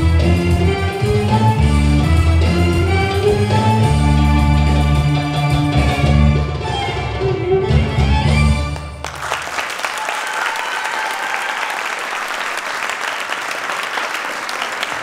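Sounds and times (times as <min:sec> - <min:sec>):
audience applauding: 0:08.7 - 0:15.0.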